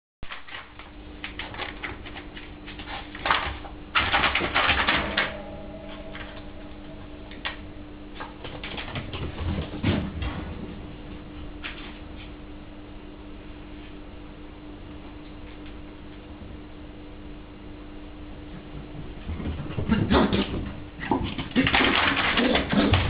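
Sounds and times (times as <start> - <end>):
puppy claws clicking on floor: 0.3 - 5.2
puppy scuffling: 7.4 - 12.4.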